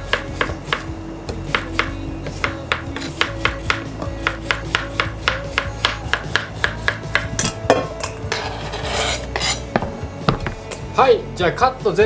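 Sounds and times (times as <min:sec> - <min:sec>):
knife chopping on plastic board: 0:01.5 - 0:08.0
slices scraping into metal colander: 0:07.4 - 0:09.7.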